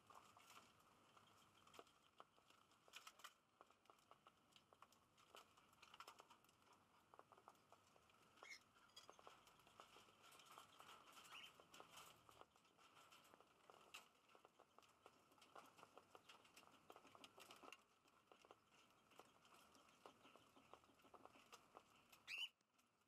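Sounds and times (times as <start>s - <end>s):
birds pecking seed: 0.0s - 23.0s
high bird chirp: 8.4s - 9.3s, 11.2s - 11.6s, 22.2s - 22.5s.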